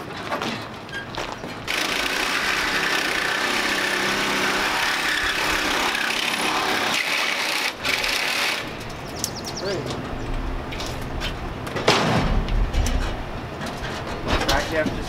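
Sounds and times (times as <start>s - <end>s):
power tool cutting metal: 1.7s - 8.8s.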